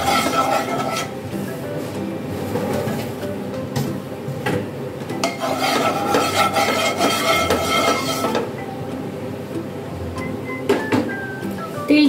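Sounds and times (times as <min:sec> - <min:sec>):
wooden spatula scraping pan: 0:00.0 - 0:01.1, 0:05.2 - 0:08.5.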